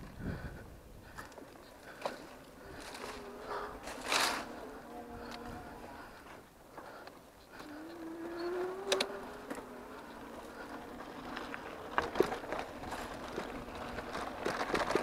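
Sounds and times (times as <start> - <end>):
bike clicks and knocks: 1.1 - 15.0
electric motor whining: 2.5 - 6.5, 7.5 - 15.0.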